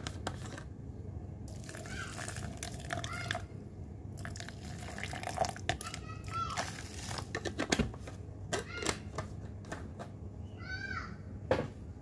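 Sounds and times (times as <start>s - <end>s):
hot water pouring into plastic cup: 1.5s - 3.4s, 4.2s - 7.3s.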